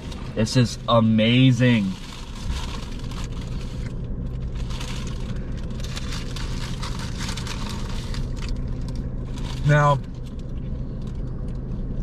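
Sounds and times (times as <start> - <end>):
car engine hum: 0.0 - 12.0
foil and paper crinkling: 1.8 - 10.4.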